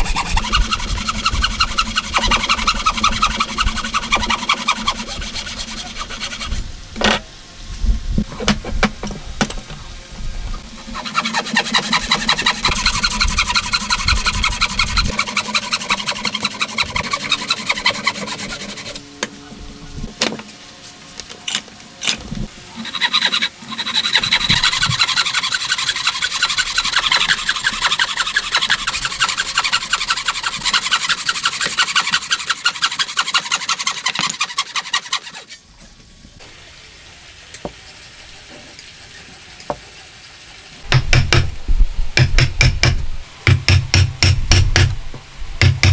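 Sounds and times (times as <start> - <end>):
hand saw cutting wood: 0.0 - 7.2, 10.7 - 19.0, 22.8 - 35.6.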